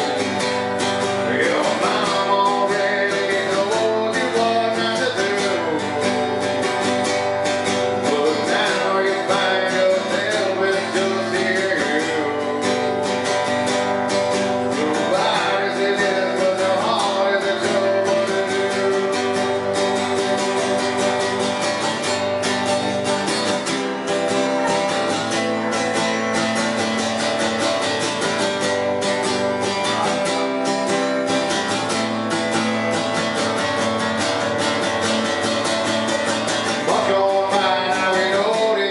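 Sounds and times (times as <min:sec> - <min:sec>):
man singing: 0:00.0 - 0:21.9, 0:29.6 - 0:32.0, 0:32.9 - 0:38.9
acoustic guitar strumming: 0:00.0 - 0:38.9.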